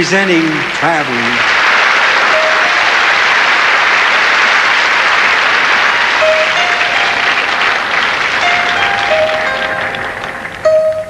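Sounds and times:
audience applauding: 0.0s - 11.0s
music with held notes: 6.1s - 11.0s.

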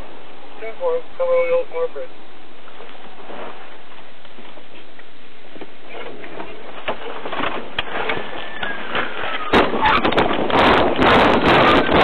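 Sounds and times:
recording hiss: 0.0s - 11.6s
wind noise on microphone: 2.5s - 12.0s.

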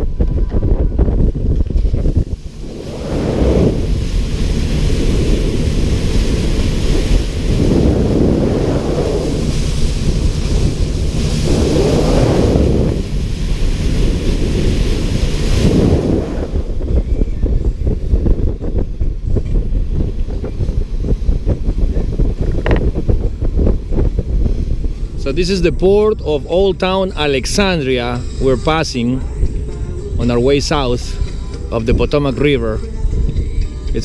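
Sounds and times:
motor boat engine rumble: 0.0s - 34.0s
wind buffeting microphone: 0.0s - 34.0s
rushing water: 1.7s - 16.9s.

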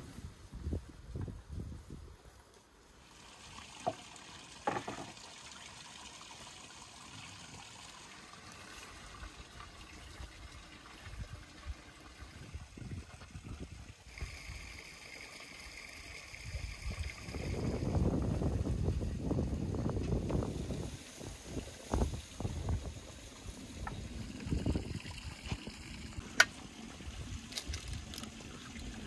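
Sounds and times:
soft trickling hiss: 0.0s - 29.0s.

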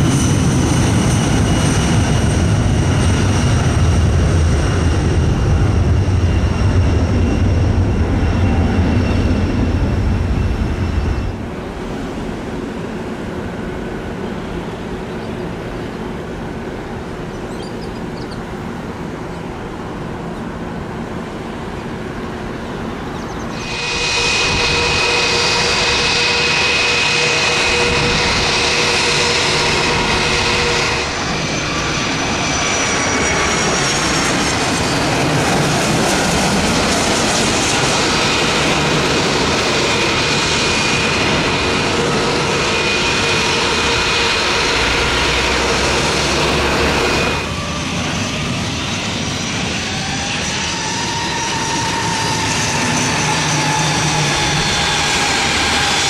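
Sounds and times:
jet engines whining: 0.0s - 56.0s
turboprop engines droning: 0.0s - 56.0s.

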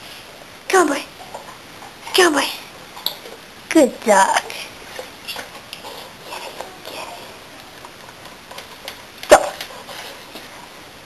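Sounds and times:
faint rustling and clicking: 4.3s - 10.8s.

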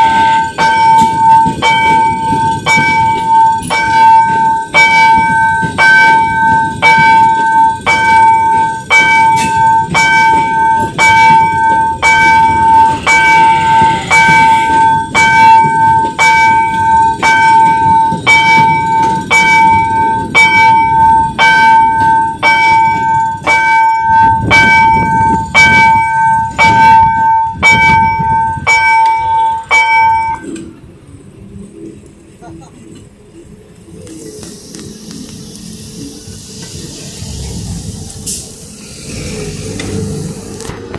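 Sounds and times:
level crossing warning bell: 0.0s - 30.8s
train rumbling past: 0.0s - 40.9s.

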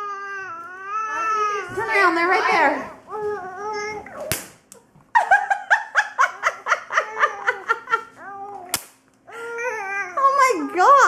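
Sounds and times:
person laughing: 5.2s - 8.3s
electric fly swatter cracking: 8.7s - 9.0s.

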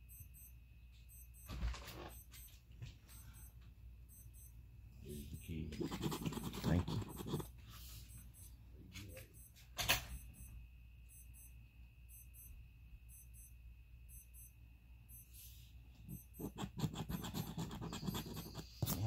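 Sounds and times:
coin scratching lottery ticket: 5.7s - 7.5s, 16.4s - 19.0s.

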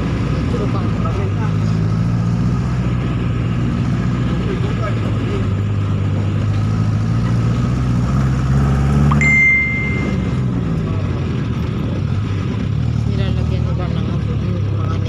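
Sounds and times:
vehicle engine running: 0.0s - 15.0s
short high beep: 9.1s - 10.5s.

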